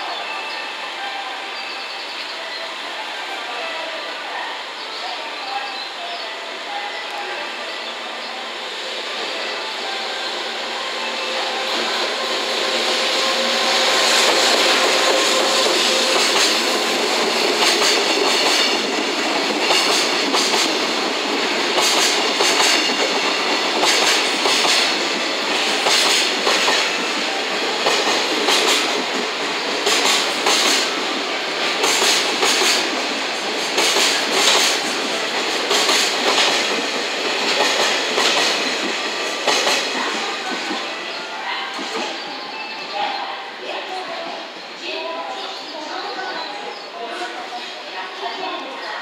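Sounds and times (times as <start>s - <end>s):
freight train rolling rumble: 0.0s - 49.0s
wheels clickety-clack on rail joints: 12.6s - 40.9s.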